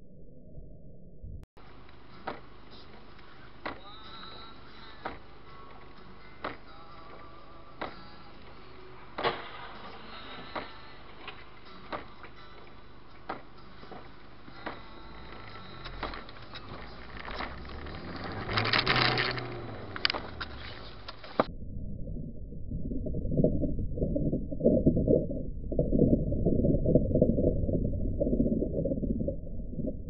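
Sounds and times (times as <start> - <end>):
muffled rumbling: 14.0 - 30.0
car driving on wet road: 14.7 - 21.5.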